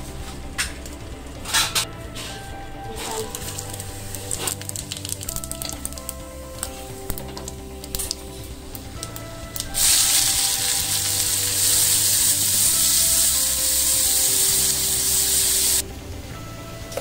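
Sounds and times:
shallots sizzling in hot oil: 0:09.6 - 0:15.8.

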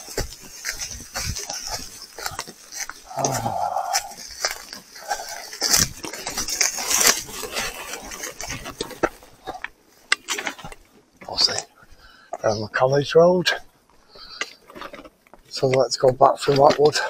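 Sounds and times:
bike parts rattling: 0:00.0 - 0:11.6.

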